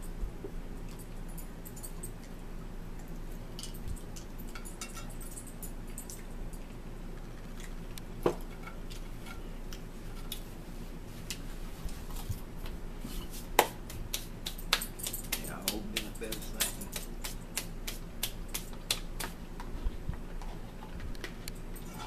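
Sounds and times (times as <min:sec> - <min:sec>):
steady low hum: 0:00.0 - 0:22.0
chewing crackers: 0:06.0 - 0:08.1.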